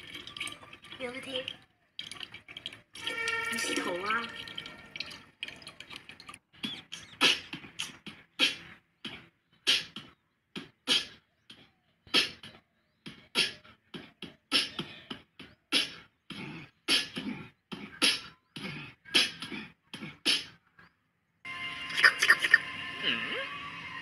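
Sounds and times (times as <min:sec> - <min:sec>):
beatbox beat: 0:06.6 - 0:20.6, 0:21.9 - 0:23.2.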